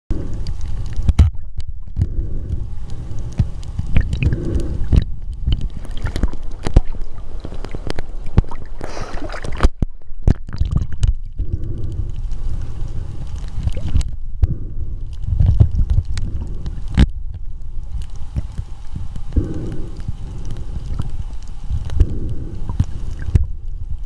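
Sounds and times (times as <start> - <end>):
water gurgling and sloshing: 0.1 - 24.0
splashing hiss: 2.0 - 9.7, 17.6 - 23.8.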